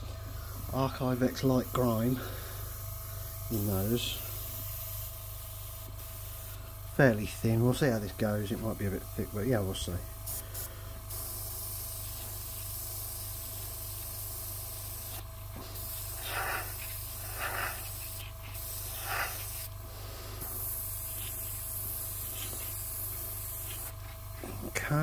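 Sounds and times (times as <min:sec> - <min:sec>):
airbrush spraying hiss: 0:00.0 - 0:07.2, 0:10.2 - 0:25.0
puffs of air: 0:10.2 - 0:24.7.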